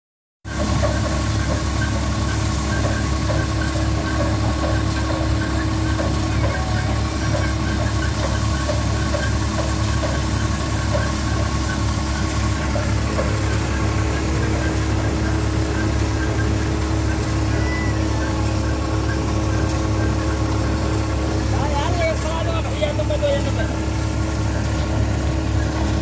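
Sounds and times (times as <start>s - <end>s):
grain thresher running: 0.5s - 26.0s
knocking rattle of machine: 0.5s - 26.0s.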